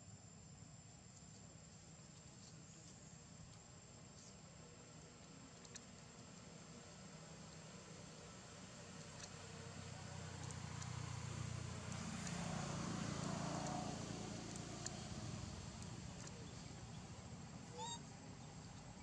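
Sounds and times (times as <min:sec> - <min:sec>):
faint clicks: 0:05.2 - 0:06.5, 0:09.0 - 0:09.4, 0:10.3 - 0:11.0
distant vehicle passing: 0:09.6 - 0:17.1.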